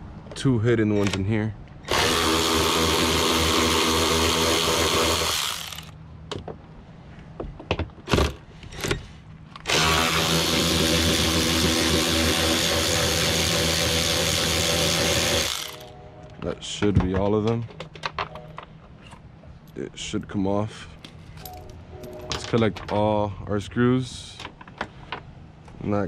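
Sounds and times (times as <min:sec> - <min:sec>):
power driver whining: 0:01.8 - 0:06.0, 0:08.7 - 0:16.4.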